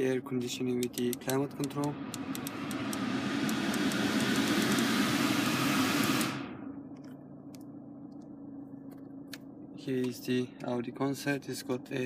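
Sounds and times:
low steady hum: 0.0s - 12.0s
blower fan rushing air: 0.5s - 7.0s
control clicks: 0.7s - 4.9s.

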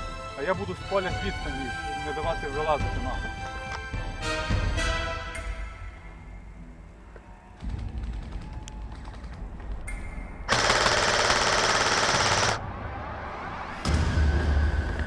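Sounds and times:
airsoft gun full auto burst: 10.5s - 12.6s.

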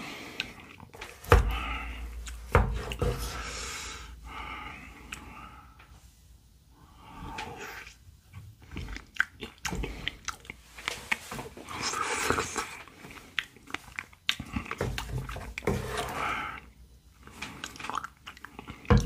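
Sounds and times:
chewing and crunching ice: 8.6s - 15.6s, 17.2s - 19.0s
wooden spoon scraping: 14.8s - 16.6s.

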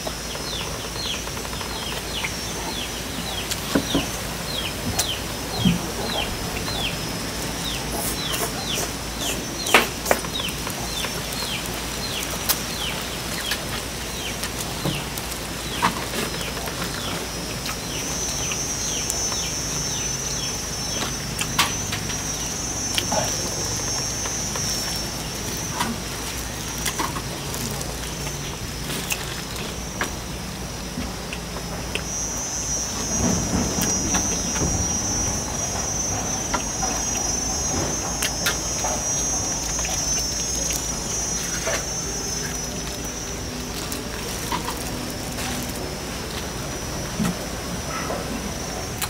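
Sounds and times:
bird chirping: 0.0s - 31.3s
high hiss: 0.0s - 49.0s.

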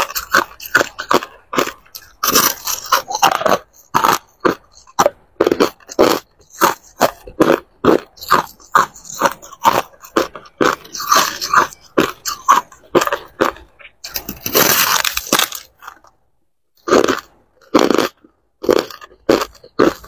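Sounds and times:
teeth crunching ice: 0.0s - 20.0s.

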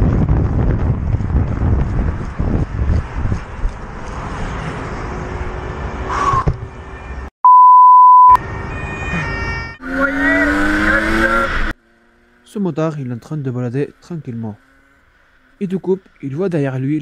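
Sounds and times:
wind rush: 0.0s - 6.8s
loud censor beep: 7.4s - 11.5s
motorcycle engine: 8.4s - 15.8s
dirt bike engine revving: 9.8s - 12.5s.

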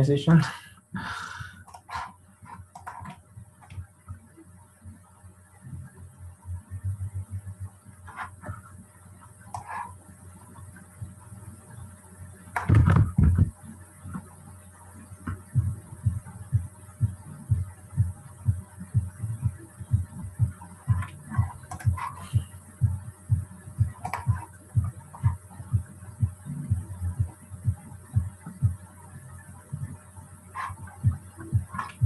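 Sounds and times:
soft low thumps: 2.6s - 9.0s, 12.6s - 14.4s, 15.0s - 32.0s.

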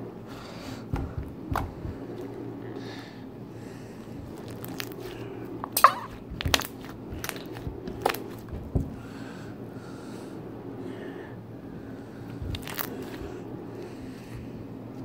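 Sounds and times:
sticky slime pops: 5.7s - 8.6s.

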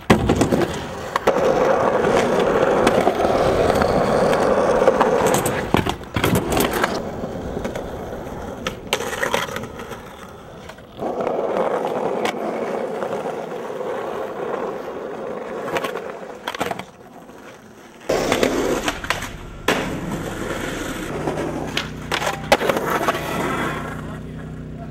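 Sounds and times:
skateboard clacking and landing: 0.0s - 24.1s
skateboard wheels rolling on concrete: 0.0s - 24.9s
low steady hum: 18.1s - 24.0s.

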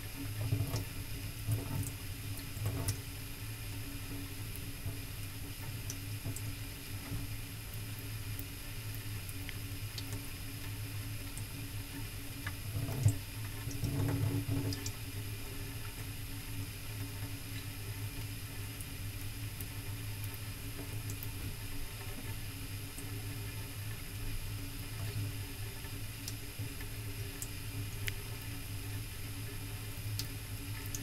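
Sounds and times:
tap water trickling into sink: 0.4s - 0.9s, 1.5s - 3.0s, 9.4s - 15.0s.

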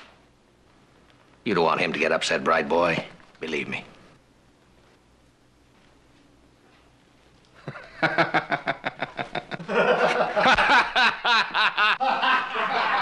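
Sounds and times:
man laughing loudly: 7.6s - 13.0s.

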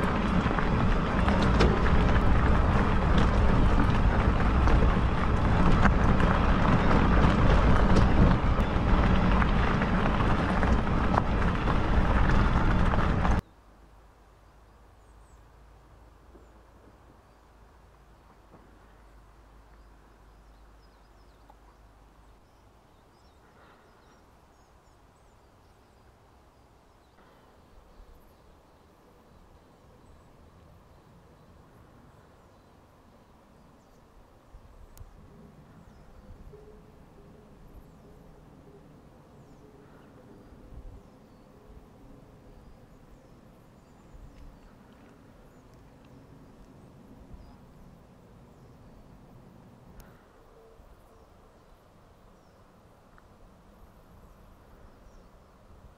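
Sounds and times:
low steady rumble: 0.0s - 23.0s
faint bird chirps: 35.7s - 41.8s, 50.0s - 52.7s.

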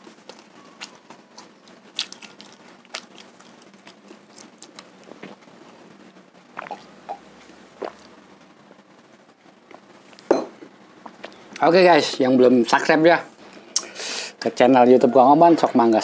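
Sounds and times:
man chewing with mouth smacks: 0.0s - 5.8s, 6.5s - 8.2s
swallowing gulps: 6.6s - 8.2s.

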